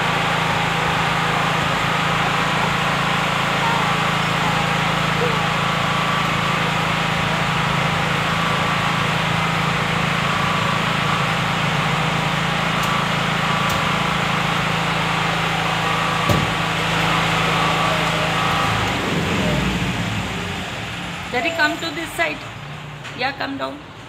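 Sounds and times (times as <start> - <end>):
loud machine hum: 0.0 - 24.0.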